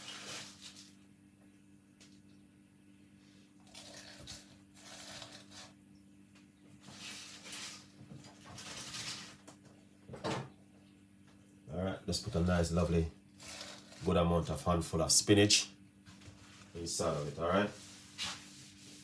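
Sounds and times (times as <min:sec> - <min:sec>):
spinach leaves rustling: 0:06.9 - 0:07.9.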